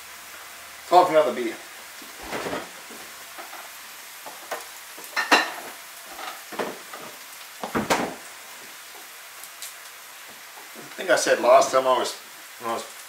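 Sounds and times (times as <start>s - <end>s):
refrigerator door opening and shutting: 2.2s - 2.7s, 7.7s - 8.2s.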